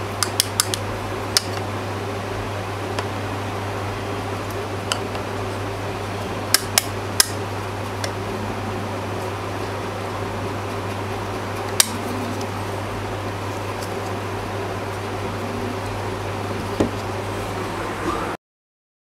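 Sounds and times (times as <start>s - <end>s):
fan-like hum: 0.0s - 18.4s.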